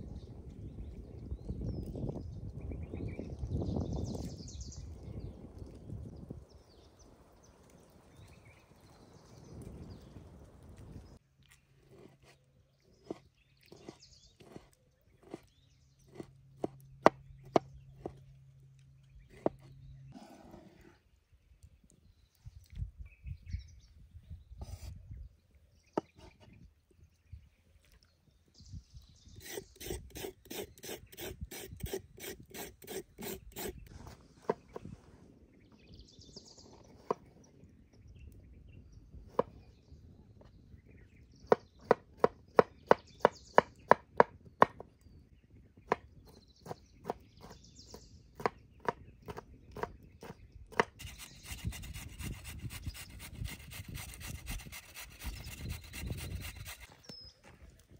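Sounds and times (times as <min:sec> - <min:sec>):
hand grater rasping: 0:50.9 - 0:56.9.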